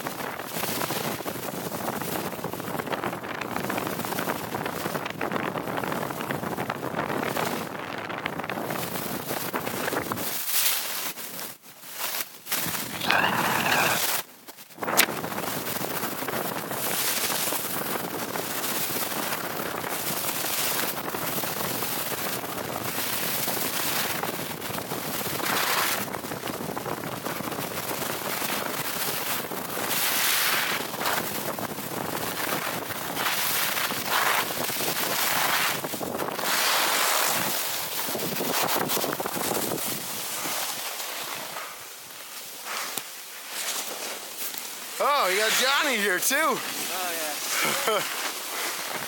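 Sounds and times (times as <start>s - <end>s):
skis scraping over snow: 25.4s - 26.0s, 32.4s - 49.0s.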